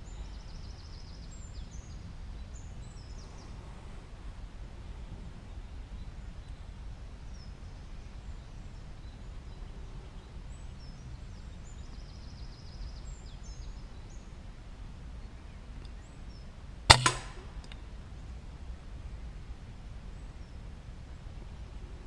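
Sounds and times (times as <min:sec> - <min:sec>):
air rifle shot crack: 0:16.9 - 0:17.8.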